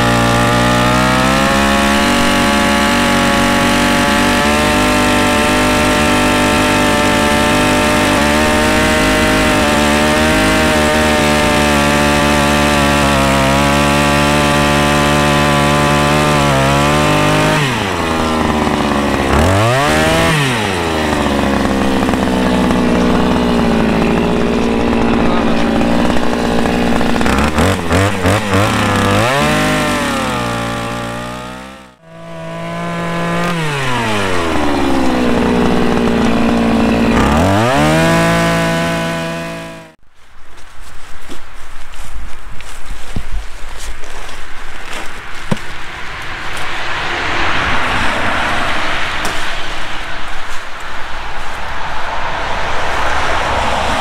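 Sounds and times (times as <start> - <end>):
earth auger engine running: 0.0 - 40.0.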